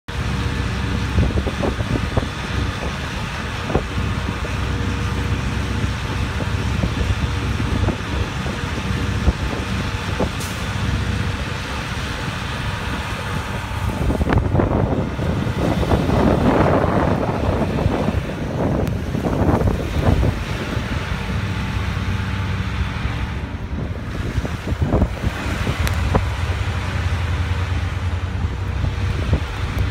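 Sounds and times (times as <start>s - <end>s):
low rumble of city traffic: 0.0s - 29.9s
car tyres rushing through slush: 0.1s - 29.9s.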